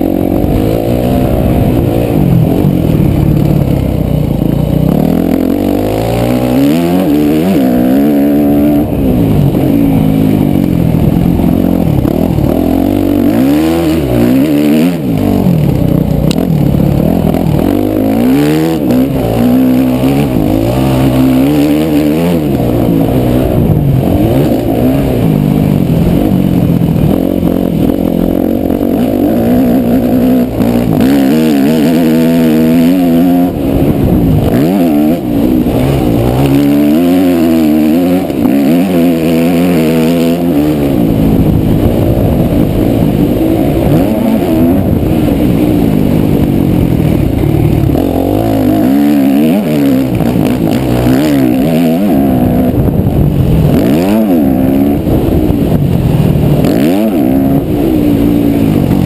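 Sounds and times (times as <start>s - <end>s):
motocross bike engine revving: 0.0s - 59.0s
wind rush: 0.0s - 59.0s.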